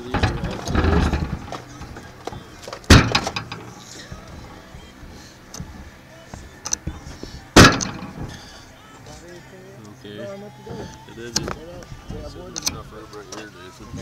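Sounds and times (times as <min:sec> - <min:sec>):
sharp knocks: 0:00.0 - 0:04.3, 0:07.6 - 0:08.5
small clicks and rattles: 0:00.0 - 0:05.8.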